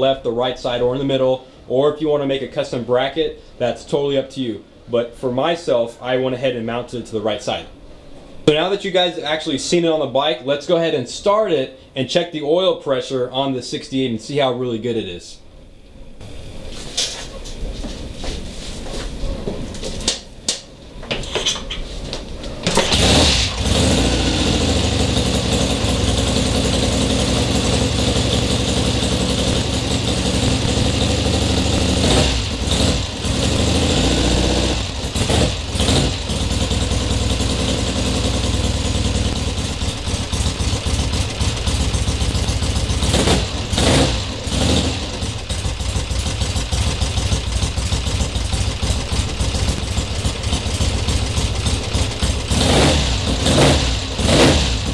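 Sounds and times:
motorcycle engine starting and idling: 21.0 - 54.9.

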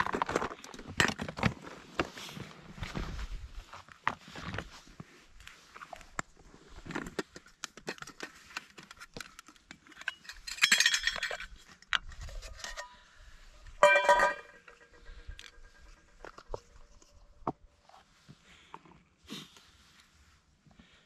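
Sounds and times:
metal pot and lid clinking: 10.0 - 11.5, 13.8 - 15.6
bright ringing metal clanks: 13.8 - 16.0.

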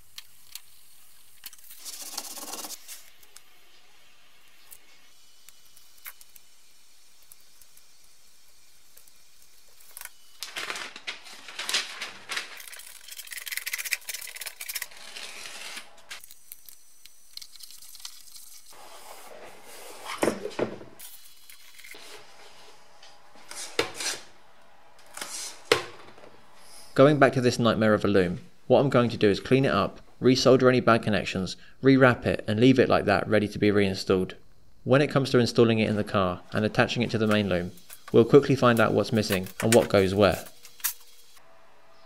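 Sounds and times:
foam sheet rustling and peeling: 7.1 - 20.3, 37.2 - 41.2.

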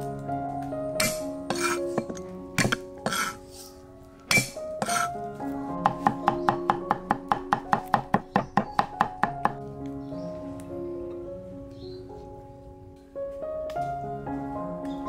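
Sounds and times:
background music: 0.0 - 15.0
cleaver chopping on wooden block: 1.0 - 3.4, 4.3 - 5.1, 5.9 - 9.5.

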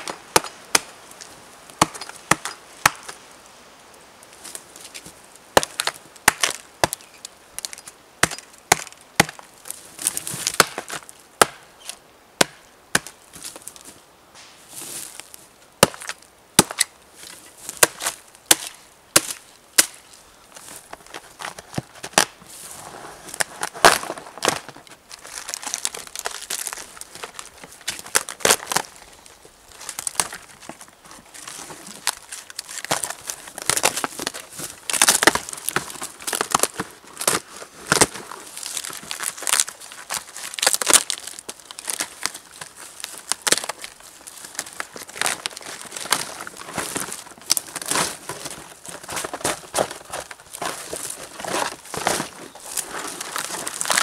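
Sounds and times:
hatchet chopping log: 0.0 - 1.0, 1.8 - 3.2, 5.6 - 7.0, 7.6 - 9.4, 10.4 - 11.7, 12.4 - 13.2, 15.8 - 16.9, 17.8 - 20.0
bark crackling and tearing: 23.4 - 54.0.

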